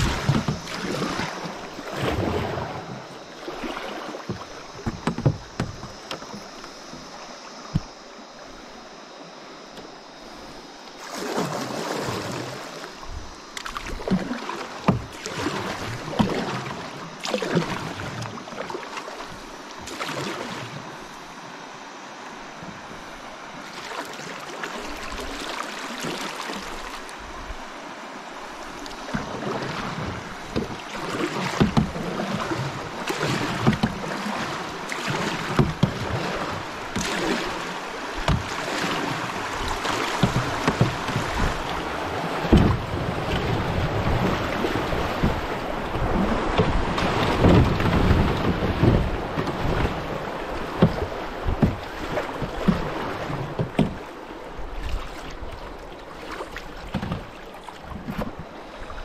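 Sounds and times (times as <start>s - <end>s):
moving water hiss: 0.0s - 56.9s
canoe paddle splashing: 0.0s - 59.0s.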